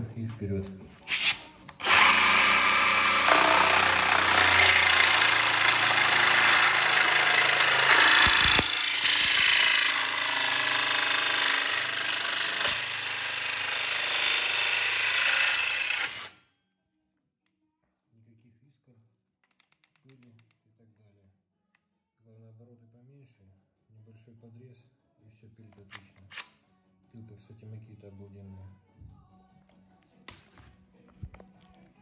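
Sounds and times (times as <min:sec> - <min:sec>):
jigsaw cutting metal: 0:01.1 - 0:16.4.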